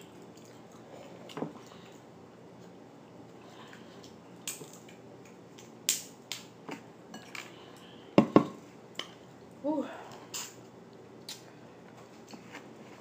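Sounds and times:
crab shells cracking: 4.4 - 6.5.

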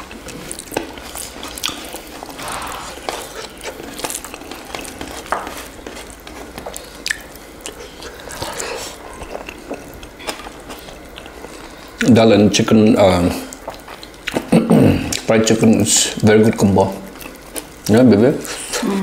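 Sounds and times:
biting and chewing food: 0.0 - 18.8
sharp mouth clicks and crackles: 6.6 - 11.4, 13.4 - 15.3.

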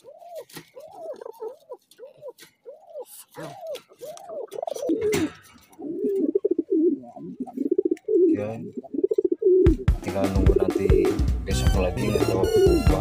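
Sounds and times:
straw and cage rustling: 0.0 - 9.4
pigeons cooing: 0.0 - 11.2, 12.2 - 13.0.

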